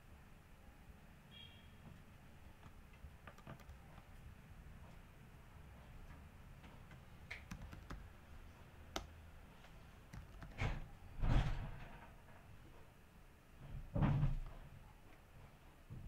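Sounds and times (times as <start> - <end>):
keyboard key clicks: 2.6 - 4.0, 6.9 - 8.0, 8.9 - 9.1, 10.1 - 10.6
keyboard thumps: 10.2 - 10.8.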